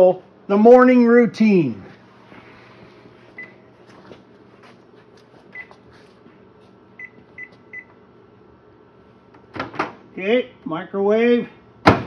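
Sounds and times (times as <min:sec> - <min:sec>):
low steady hum: 0:00.0 - 0:12.0
appliance control panel beeps: 0:03.4 - 0:03.6, 0:07.0 - 0:08.0.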